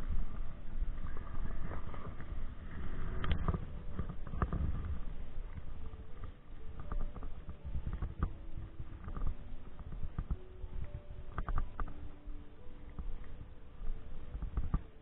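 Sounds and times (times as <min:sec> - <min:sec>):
steady low rumble: 0:00.0 - 0:15.0.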